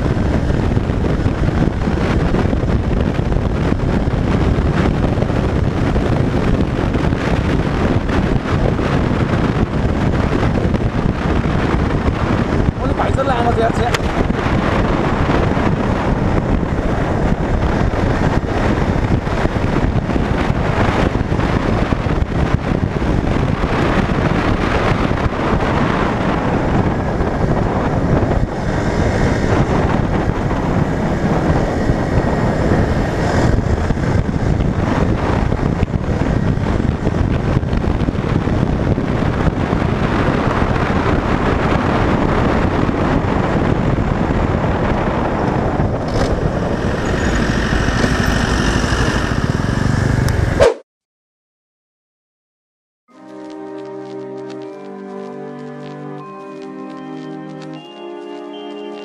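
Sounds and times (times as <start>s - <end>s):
motorcycle engine running: 0.0s - 50.6s
wind rush on microphone: 0.0s - 50.8s, 53.1s - 59.0s
passing vehicle hiss: 46.1s - 50.6s.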